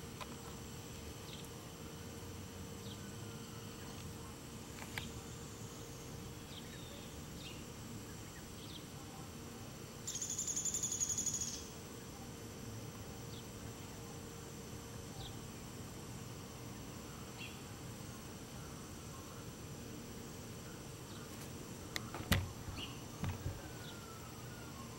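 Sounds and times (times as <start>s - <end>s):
fast-pulsing insect buzz: 10.0s - 12.0s.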